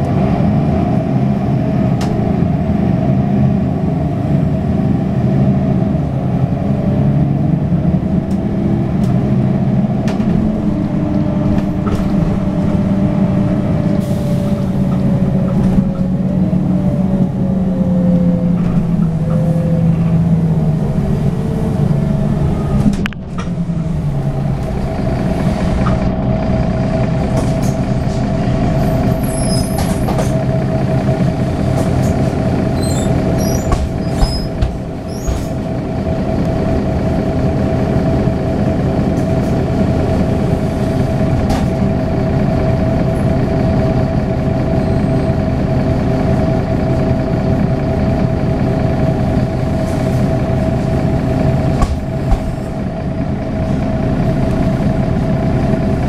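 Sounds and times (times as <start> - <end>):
diesel bus engine idling: 0.0 - 56.0.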